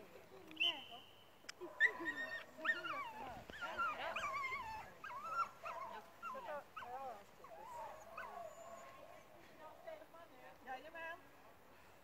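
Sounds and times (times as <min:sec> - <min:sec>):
dog whining and yipping: 0:01.8 - 0:09.0.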